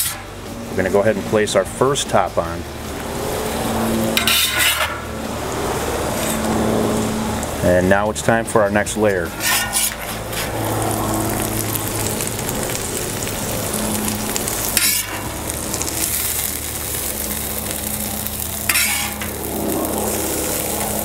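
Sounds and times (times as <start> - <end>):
metal spatula scraping steel: 0.0 - 0.3, 4.2 - 5.1, 9.2 - 10.6, 14.7 - 15.3, 18.6 - 19.3
meat and vegetables sizzling: 0.0 - 8.2, 9.0 - 21.0.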